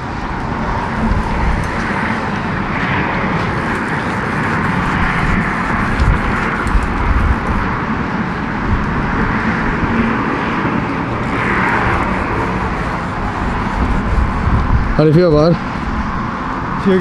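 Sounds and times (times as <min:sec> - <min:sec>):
passing road traffic: 0:00.0 - 0:17.0
wind buffeting microphone: 0:00.0 - 0:17.0.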